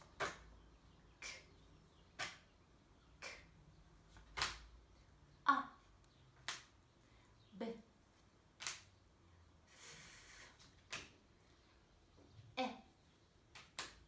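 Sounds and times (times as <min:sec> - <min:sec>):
woman voicing phonics sounds: 0:03.2 - 0:03.6, 0:05.4 - 0:05.9.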